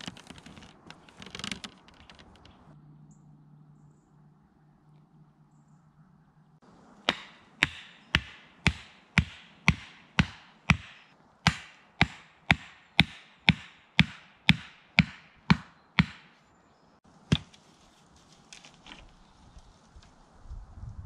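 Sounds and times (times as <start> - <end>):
wooden stake being hammered: 7.1 - 16.4, 17.3 - 17.6
dry leaves rustling underfoot: 17.0 - 20.9.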